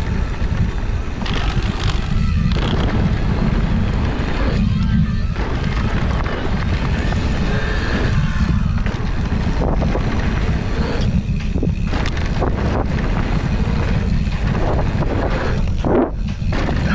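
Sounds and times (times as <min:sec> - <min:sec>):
bike knocks and rattles: 0:00.0 - 0:16.9
steady low rumble: 0:00.0 - 0:16.9
tyres rolling on dirt: 0:00.0 - 0:16.9
wind rushing over microphone: 0:00.0 - 0:16.9.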